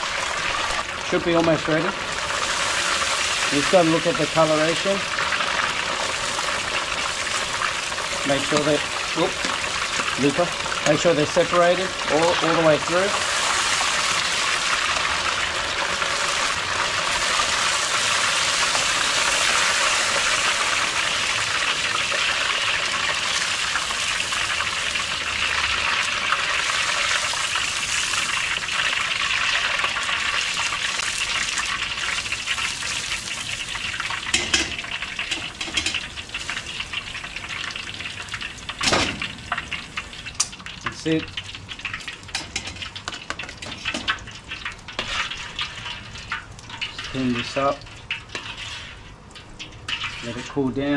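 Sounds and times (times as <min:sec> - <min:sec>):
fish deep-frying in hot oil: 0:00.0 - 0:50.9.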